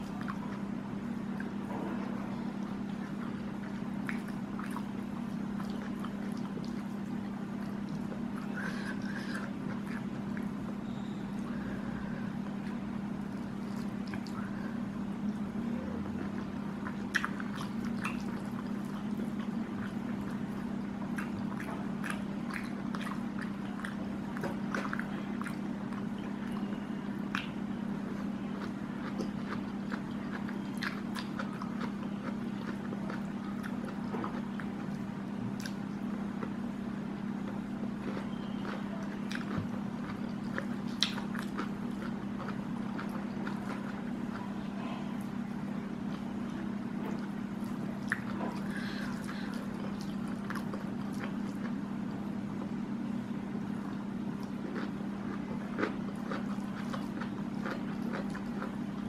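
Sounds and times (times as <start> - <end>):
chewing and mouth sounds: 0.0 - 0.7, 1.3 - 52.8, 53.7 - 59.0
low hum: 0.0 - 42.0.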